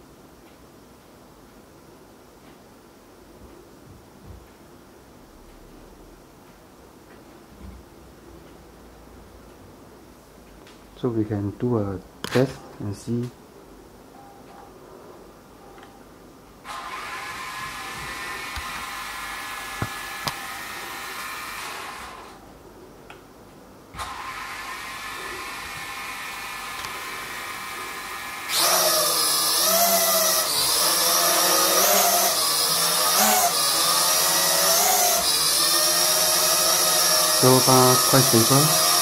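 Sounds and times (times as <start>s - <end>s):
toy drone propellers whining: 16.7s - 22.4s, 24.0s - 39.0s.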